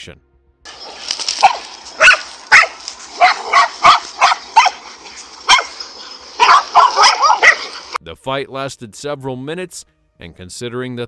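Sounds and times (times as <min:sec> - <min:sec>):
dogs barking sharply: 0:00.7 - 0:08.0.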